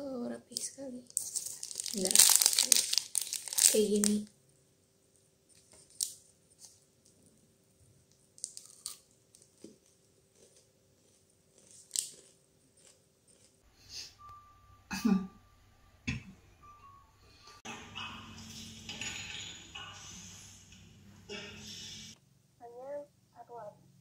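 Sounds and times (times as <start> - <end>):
plastic wrapper crinkling: 0.5 - 4.3, 5.5 - 7.2, 8.1 - 13.5
snack bar crunching: 1.2 - 3.8, 8.1 - 13.6.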